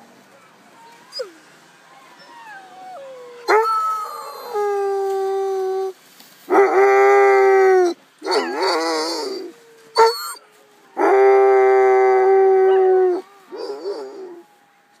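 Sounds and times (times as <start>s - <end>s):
husky howling: 6.5s - 15.0s.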